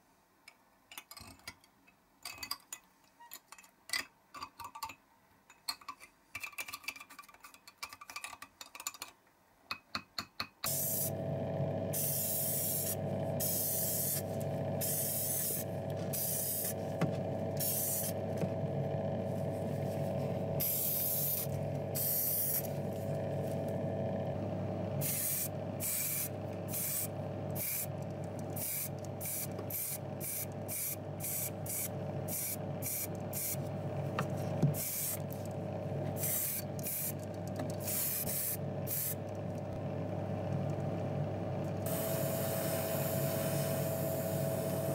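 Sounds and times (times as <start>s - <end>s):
steady low hum: 10.7s - 44.9s
paint spraying in hissing bursts: 12.0s - 16.8s, 17.6s - 18.2s, 20.6s - 22.7s, 37.8s - 39.2s.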